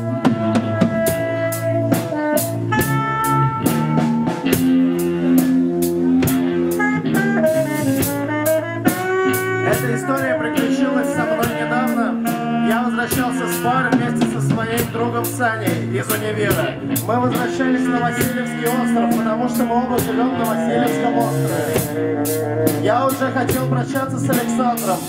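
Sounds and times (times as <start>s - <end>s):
drum kit cymbal beat: 0.0s - 25.0s
electric guitar: 0.0s - 25.0s
saxophone holding long notes: 0.0s - 25.0s.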